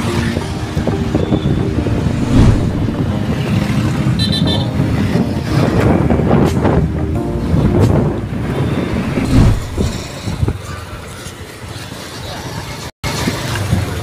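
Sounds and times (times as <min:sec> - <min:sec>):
road traffic rumble: 0:00.0 - 0:14.0
vehicle horn short beeps: 0:04.2 - 0:04.8.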